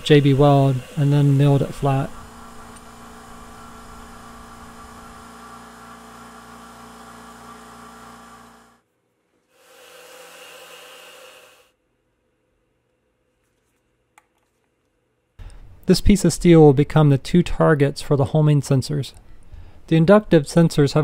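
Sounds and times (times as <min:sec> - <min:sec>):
mill cutting steel with hiss: 0:00.0 - 0:08.7, 0:09.6 - 0:11.7
milling machine humming: 0:00.0 - 0:08.8, 0:09.6 - 0:11.6.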